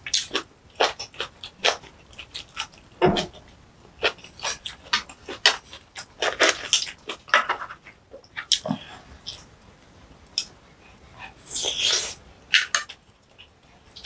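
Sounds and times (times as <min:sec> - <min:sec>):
person chewing food: 0:00.1 - 0:09.5.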